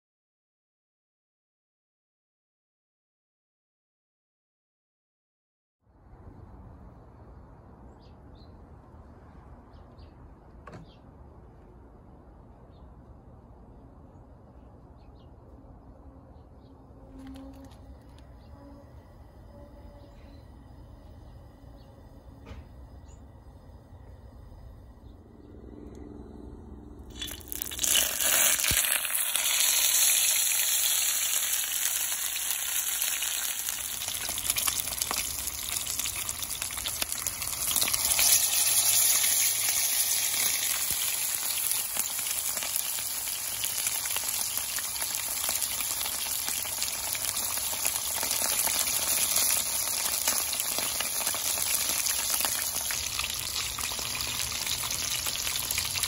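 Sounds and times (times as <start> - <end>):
fish sizzling in hot oil: 27.1 - 56.0.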